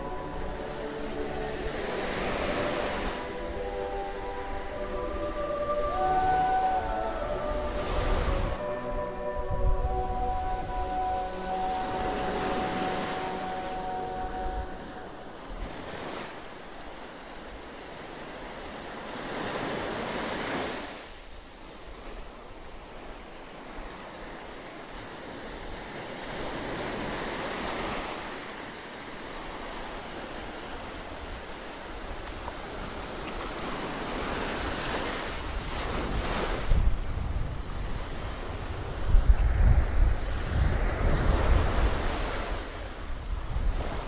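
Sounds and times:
sea surf breaking on beach: 0.0 - 44.0
wind gusting on microphone: 30.3 - 44.0.

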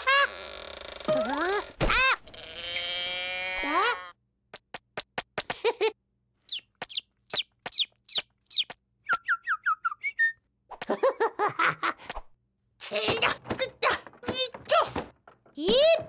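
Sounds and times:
squeaky cartoon voice: 0.0 - 2.2
falling whistle-like chirps: 8.1 - 10.4.

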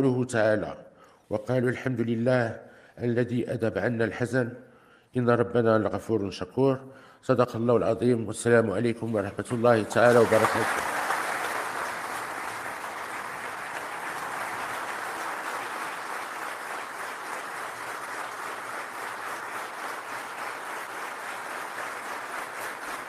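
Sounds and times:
crowd applauding: 9.5 - 23.0.

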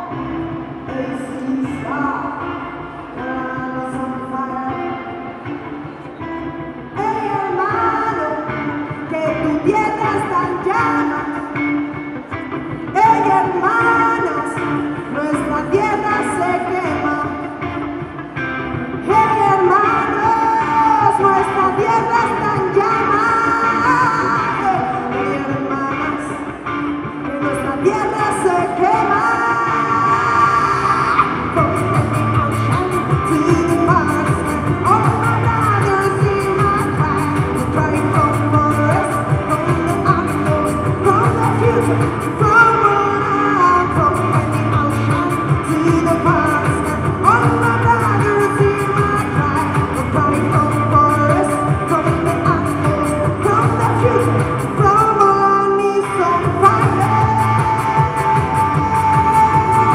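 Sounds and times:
backing music: 0.0 - 59.9
electric guitar: 0.0 - 59.9
woman singing into microphone: 0.0 - 59.9
woman belting long notes: 6.6 - 59.9
steady beat: 31.2 - 42.6.

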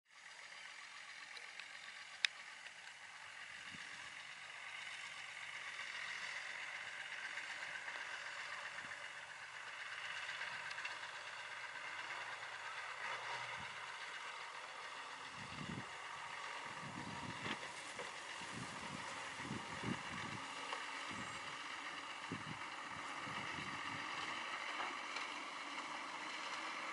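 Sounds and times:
distant truck engine drone: 0.1 - 26.9.

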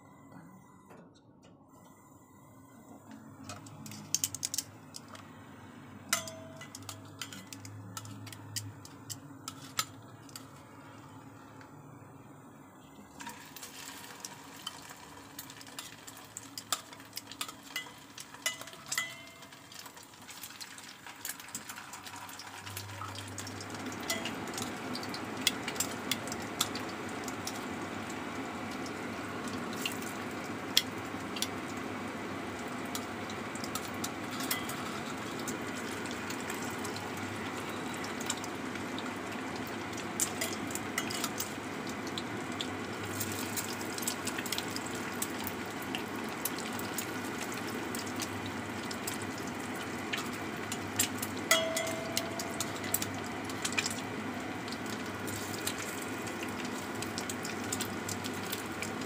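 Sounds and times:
oil crackling: 13.2 - 51.7, 52.4 - 59.0
food sizzling in hot oil: 13.2 - 59.0.

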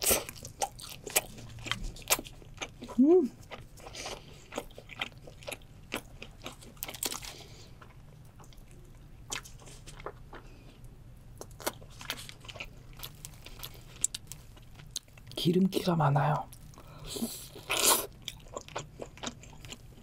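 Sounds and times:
chewing and crunching: 0.0 - 15.4, 16.4 - 20.0.

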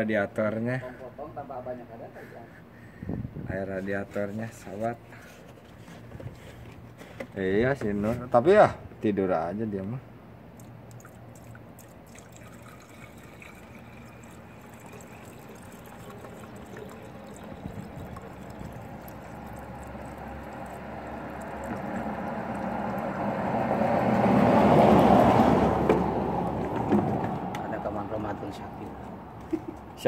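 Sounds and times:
water pouring into radiator: 10.6 - 23.5.

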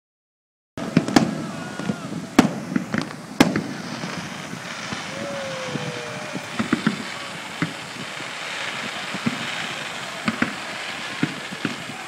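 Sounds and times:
firework pops and crackles: 0.8 - 12.0
fireworks bangs: 0.8 - 12.0.

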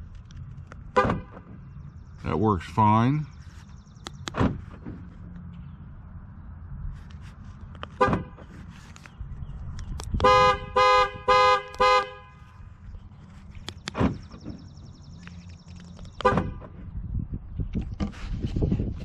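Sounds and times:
pickup truck horn honking: 10.2 - 12.5.

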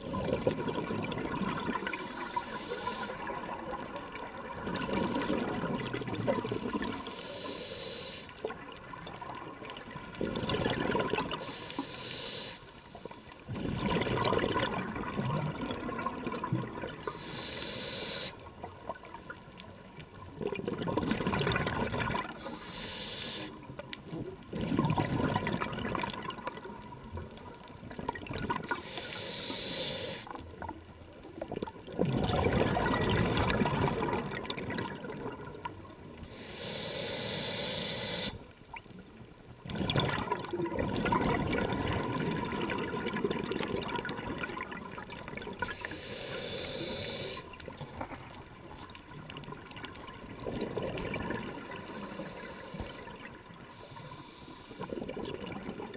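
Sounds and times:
exhaled air bubbling underwater: 0.0 - 55.9
regulator inhale hiss: 1.8 - 3.4, 7.0 - 8.5, 11.3 - 13.5, 17.0 - 18.5, 22.2 - 23.7, 28.7 - 30.4, 36.2 - 38.6, 45.6 - 47.6, 51.8 - 55.0.

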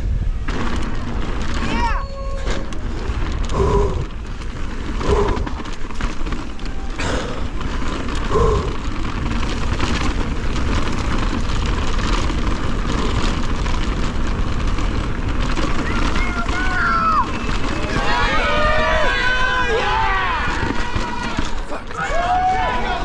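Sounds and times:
bike rumbling and rattling: 0.0 - 23.0.

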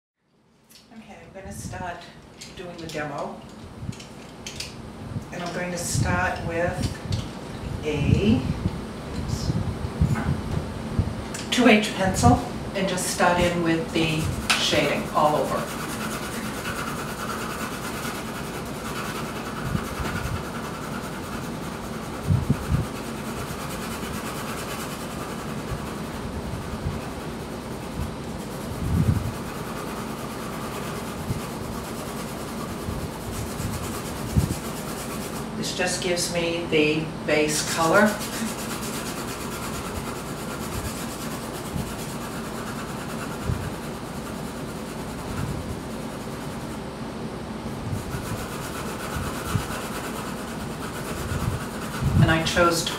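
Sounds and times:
pencil shading on paper: 13.3 - 35.4, 37.7 - 46.8, 48.0 - 52.9.

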